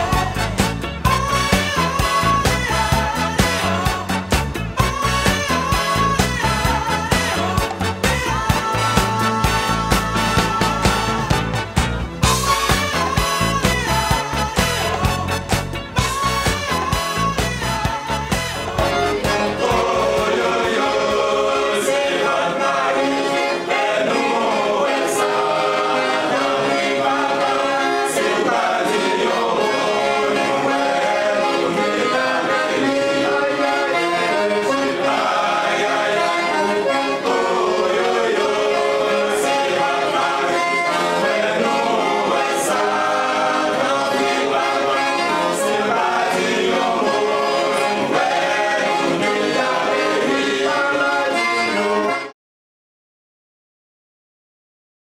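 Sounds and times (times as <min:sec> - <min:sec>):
accordion: 0:00.0 - 0:52.4
men singing in harmony: 0:16.1 - 0:52.3.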